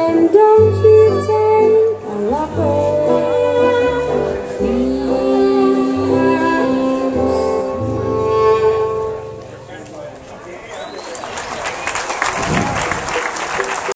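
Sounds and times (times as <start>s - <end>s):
acoustic guitar: 0.0s - 10.4s
fiddle playing: 0.0s - 10.6s.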